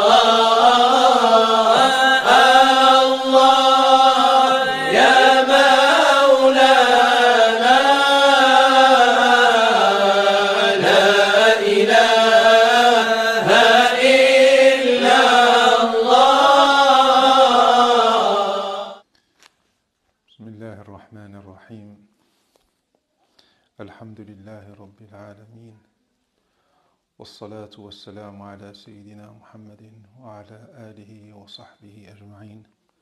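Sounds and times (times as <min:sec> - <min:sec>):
person chanting: 0:00.0 - 0:19.0.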